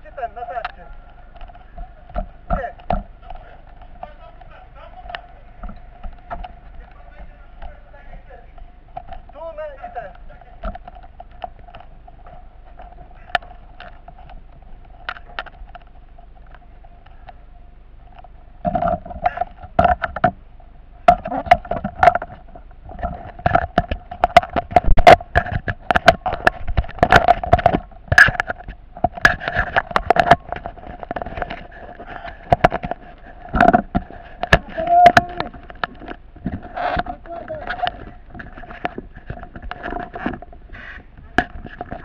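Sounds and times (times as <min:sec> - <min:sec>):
equipment thumps and clatters: 0:21.1 - 0:42.0.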